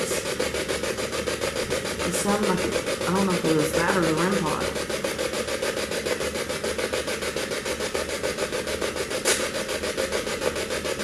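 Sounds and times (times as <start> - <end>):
rasping pulsing hiss: 0.0 - 11.0
sharp click: 9.2 - 9.4.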